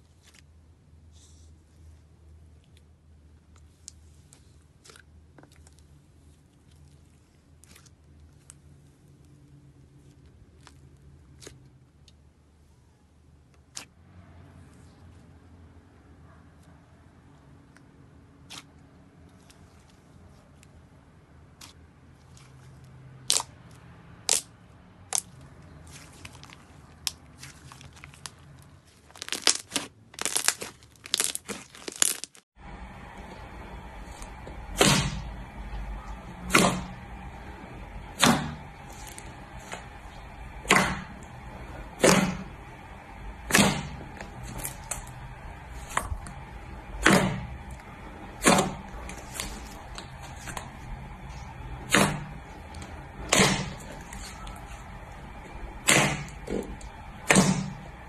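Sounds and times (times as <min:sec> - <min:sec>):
slime clicks and crackles: 0:29.1 - 0:32.4.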